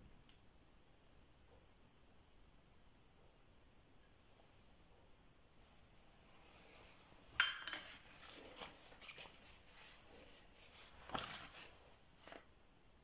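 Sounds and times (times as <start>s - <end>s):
metal dishes clinking: 7.4s - 8.0s
dishes clattering on countertop: 7.4s - 8.1s.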